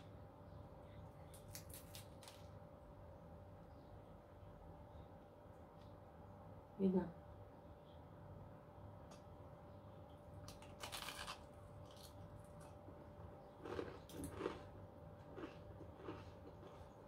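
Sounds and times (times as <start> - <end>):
cookie crunching: 0.9 - 2.6, 10.1 - 17.0.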